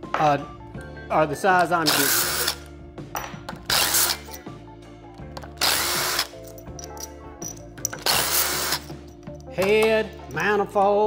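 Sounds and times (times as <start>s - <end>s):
cordless impact driver bursts: 1.9s - 2.6s, 3.7s - 4.2s, 5.6s - 6.3s, 8.0s - 8.9s.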